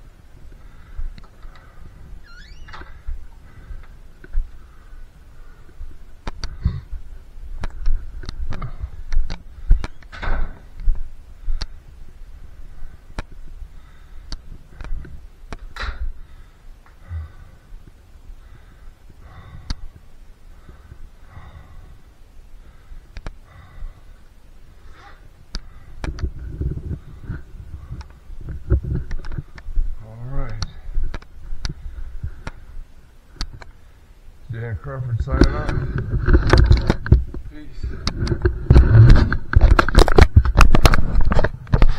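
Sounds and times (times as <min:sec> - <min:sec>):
sharp clicks and knocks: 0:35.4 - 0:41.9.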